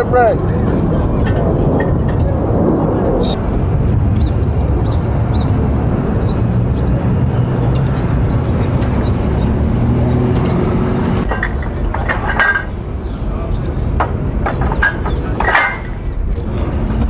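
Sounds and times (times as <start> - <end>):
street traffic rumble: 0.0 - 17.0
passing car engine hum: 2.4 - 11.3.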